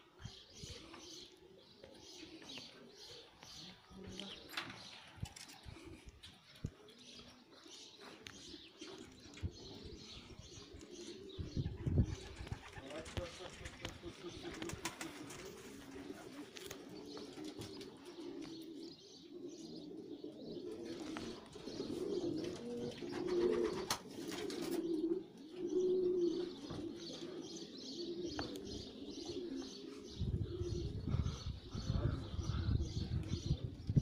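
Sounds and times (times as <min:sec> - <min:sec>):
pigeons cooing: 0:00.0 - 0:34.0
wings fluttering: 0:11.7 - 0:17.9.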